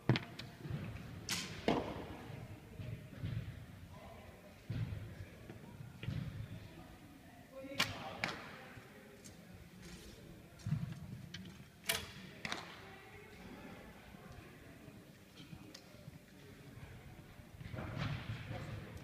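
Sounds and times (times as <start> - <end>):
arrows striking target: 1.3 - 2.0.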